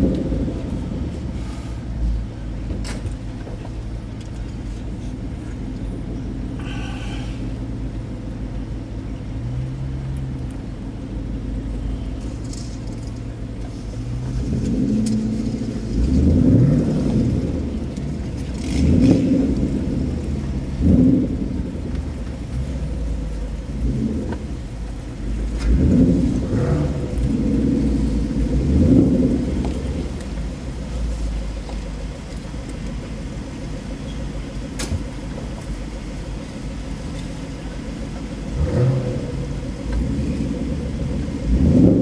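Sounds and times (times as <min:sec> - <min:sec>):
car engines idling and revving: 0:00.0 - 0:42.0.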